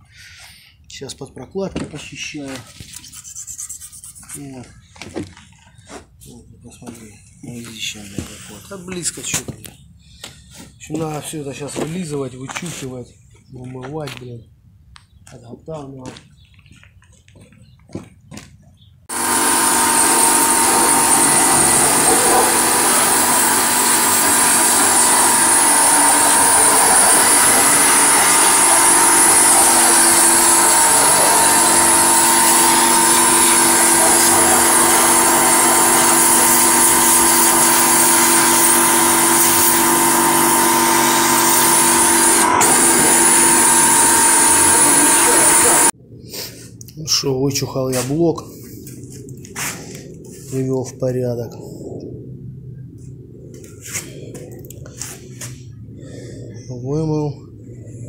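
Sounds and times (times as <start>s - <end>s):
water jet hissing: 19.1s - 45.9s
pressure washer pump humming: 19.1s - 46.0s.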